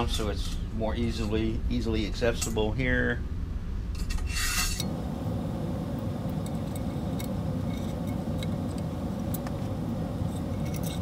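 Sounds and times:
steady low rumble: 0.0 - 11.0
metallic clicks of tools and screws: 10.2 - 11.0.

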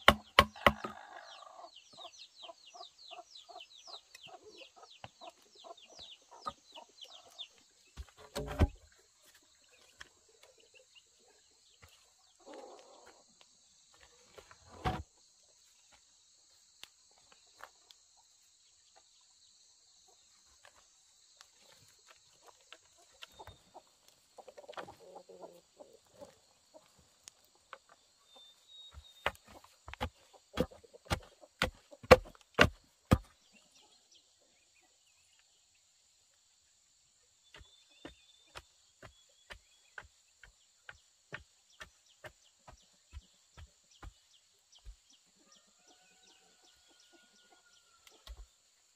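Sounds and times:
chickens clucking: 0.0 - 8.7, 11.8 - 15.7, 21.6 - 33.3.

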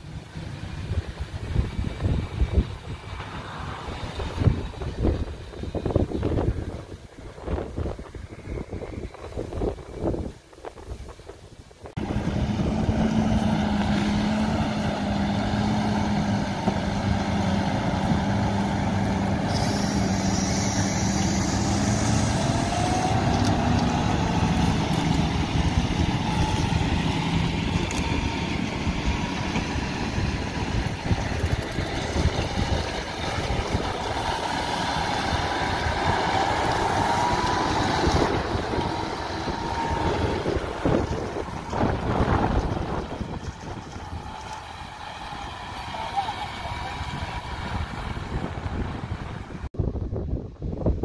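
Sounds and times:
tractor engine under load: 11.9 - 49.7.

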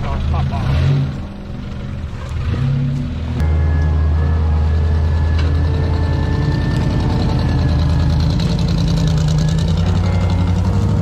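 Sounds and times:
truck engine running steadily: 0.0 - 11.0.

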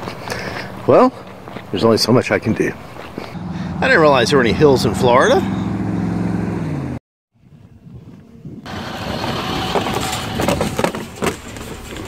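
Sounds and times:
passing vehicle engine hum: 3.1 - 12.0.

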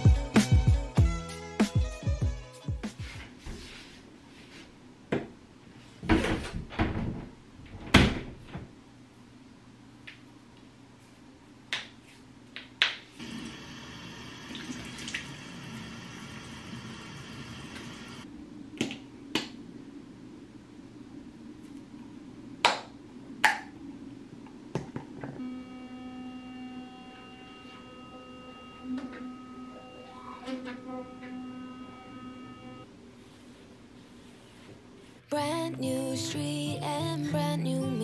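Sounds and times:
electric toothbrush buzzing: 13.2 - 18.2.

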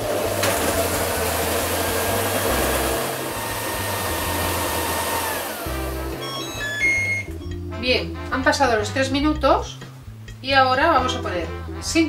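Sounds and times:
food processor motor whining: 0.0 - 7.2.

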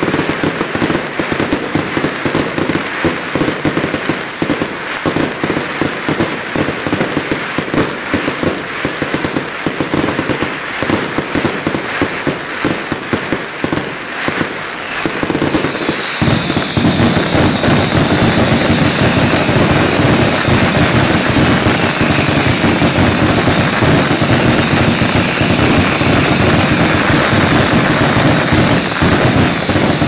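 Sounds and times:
fireworks bangs and crackles: 0.0 - 30.0
high falling whistle: 14.6 - 20.7.

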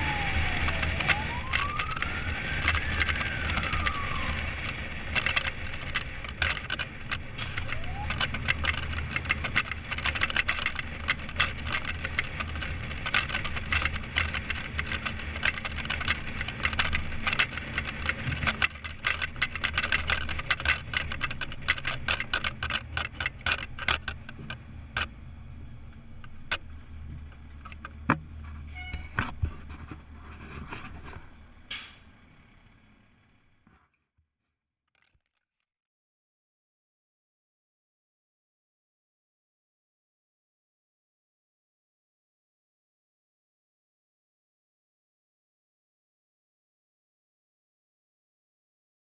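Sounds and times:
siren yelp: 0.0 - 5.6, 7.6 - 8.6
siren wail: 0.0 - 5.8, 7.6 - 8.8
low engine drone: 0.0 - 33.8
cab rattling and clicking: 0.1 - 32.0, 34.9 - 35.4.

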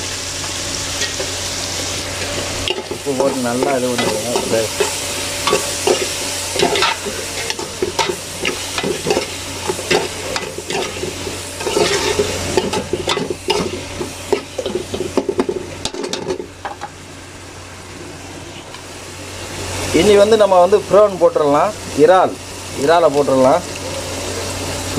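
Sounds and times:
frying sizzle: 0.0 - 24.9
metal spoon stirring in pot: 2.1 - 15.6.

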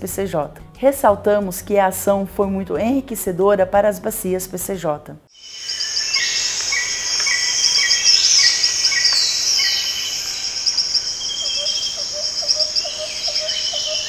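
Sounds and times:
insects trilling: 5.3 - 14.0
birds chirping and whistling: 5.4 - 14.0.

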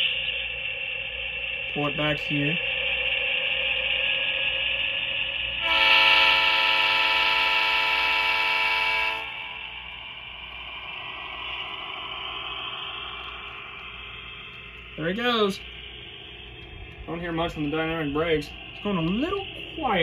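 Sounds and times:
model diesel engine running: 0.0 - 20.0
locomotive horn blast: 5.6 - 9.6.

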